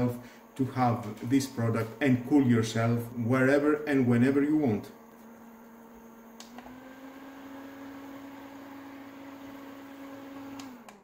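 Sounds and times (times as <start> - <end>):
air cooler fan humming: 0.0 - 11.0
switch click: 6.4 - 6.7.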